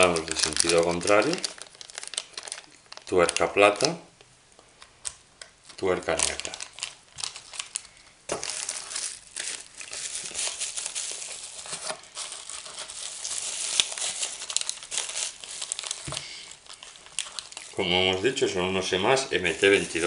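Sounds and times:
plastic packaging crinkling: 0.0 - 4.0, 4.8 - 20.0.

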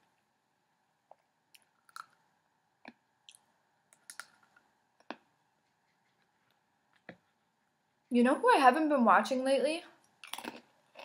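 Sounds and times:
person chewing crunchy pretzels: 1.5 - 2.2, 10.2 - 11.0.

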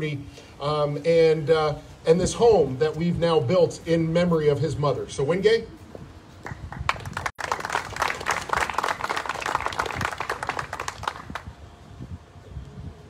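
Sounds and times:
crowd clapping: 6.4 - 11.5.

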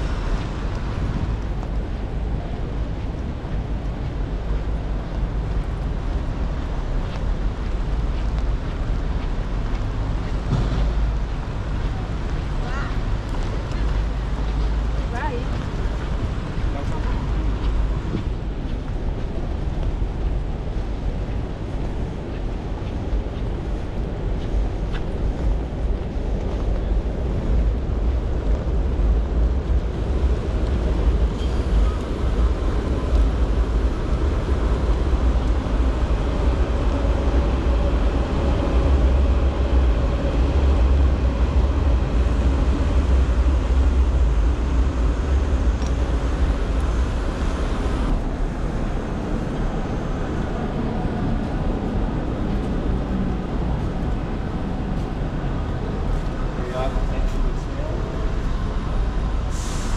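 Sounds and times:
rain hiss: 0.0 - 16.6, 27.5 - 50.4, 58.3 - 59.9
traffic on wet roads: 0.0 - 59.9
train rumbling over viaduct: 0.0 - 59.9.

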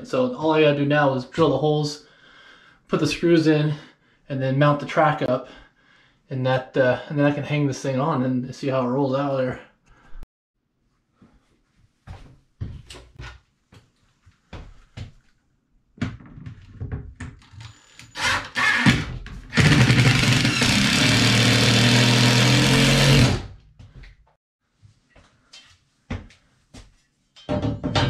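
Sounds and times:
cordless drill boring into wood: 17.9 - 23.5
drill knocking against board: 18.8 - 23.4.

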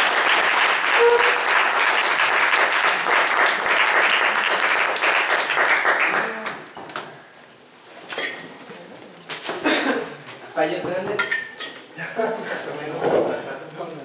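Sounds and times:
audience applauding: 0.0 - 6.7.

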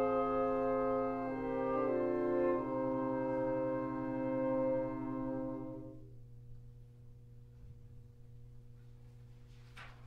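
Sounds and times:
woodwind quintet playing chords: 0.0 - 6.2.

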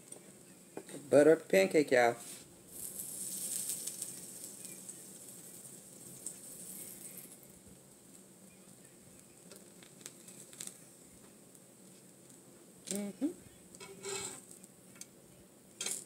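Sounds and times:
pancakes sizzling on griddle: 0.0 - 16.0
light clicks of turning pancake: 3.2 - 13.0.

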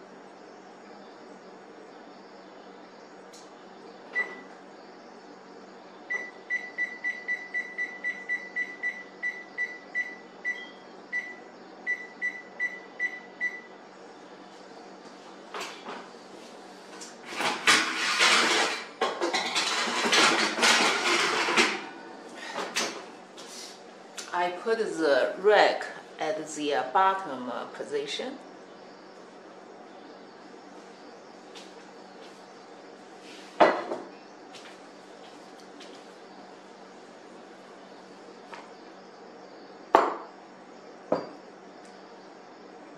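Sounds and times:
oven control panel beeps: 4.1 - 4.5, 6.1 - 13.8.

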